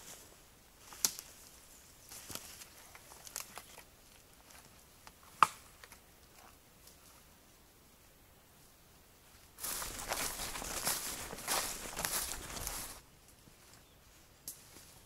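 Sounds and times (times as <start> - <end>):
footsteps through undergrowth: 0.0 - 5.4, 9.6 - 15.0
twig snaps: 0.9 - 1.3, 4.5 - 6.0.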